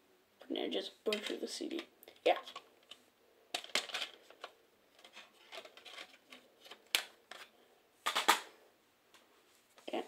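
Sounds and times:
plastic cases rustling: 1.1s - 8.5s.

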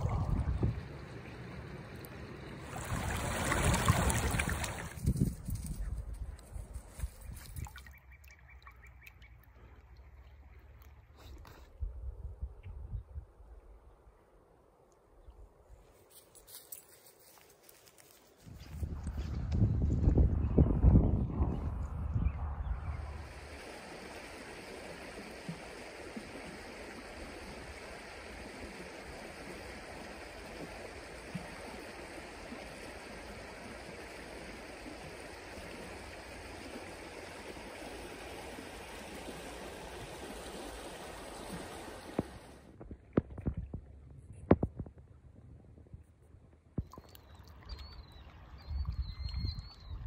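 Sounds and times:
stream flowing over a riffle: 0.0s - 5.0s, 23.0s - 42.8s.

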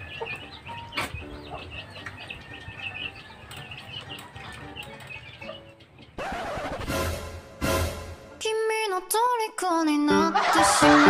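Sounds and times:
birds chirping: 0.0s - 6.9s.

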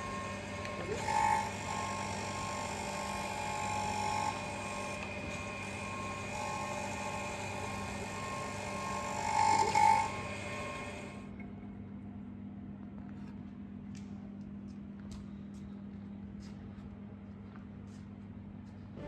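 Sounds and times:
grinder motor hum: 0.0s - 11.4s
grinder whine: 0.0s - 11.4s.

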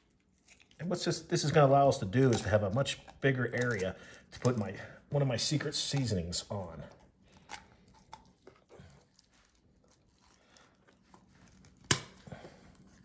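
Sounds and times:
shears snipping bones: 0.8s - 4.7s, 11.6s - 12.4s
sharp bone snap: 11.9s - 12.2s.

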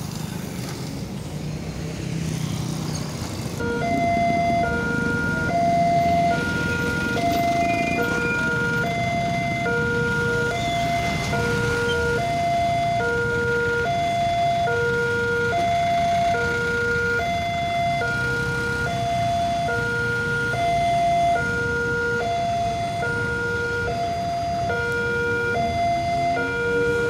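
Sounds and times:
idling engines: 0.0s - 27.0s
level-crossing two-tone alarm: 3.6s - 27.0s.

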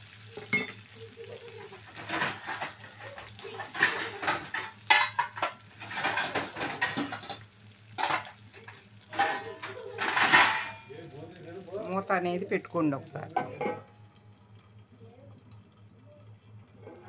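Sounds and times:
vegetables sizzling in oil: 0.0s - 17.0s
metal utensils scraping a pan: 1.6s - 7.4s, 8.0s - 11.0s.

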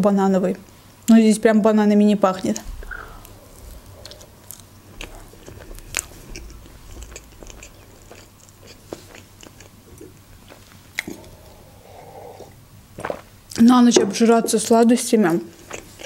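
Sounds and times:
mouth clicks: 2.6s - 13.6s
person chewing cake: 2.6s - 13.6s, 14.4s - 16.0s.

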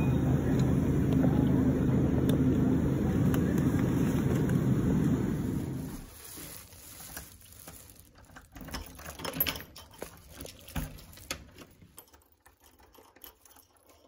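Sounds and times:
keys jingling: 8.1s - 14.0s.

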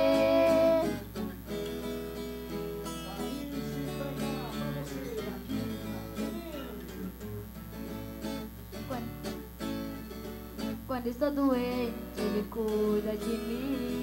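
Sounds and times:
person singing: 0.0s - 1.0s, 10.9s - 14.0s
acoustic guitars playing: 0.0s - 14.0s.

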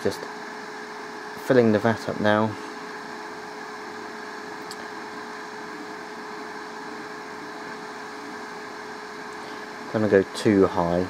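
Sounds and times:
small fan humming: 0.0s - 11.0s.

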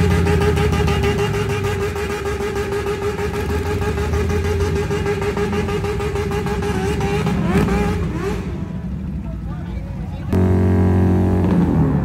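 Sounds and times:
motorcycle engine rev: 0.0s - 9.3s, 10.3s - 12.0s
motorcycles rumbling past: 0.0s - 9.4s.

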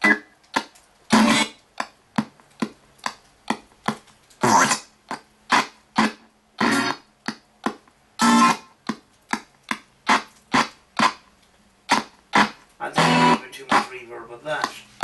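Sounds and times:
snatches of music: 0.0s - 15.0s
chopped bursts of radio audio: 12.4s - 14.8s.

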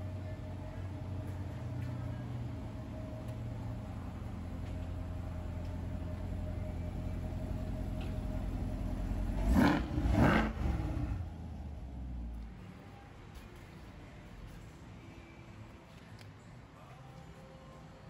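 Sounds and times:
car engine idling and revving: 0.0s - 13.5s.

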